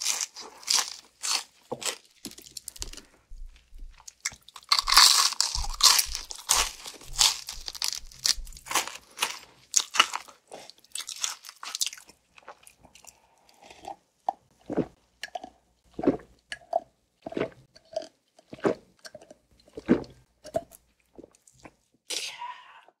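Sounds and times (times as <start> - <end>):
crunchy bites of fried chicken: 0.0 - 3.2, 4.0 - 13.1
slow chewing: 0.0 - 21.8.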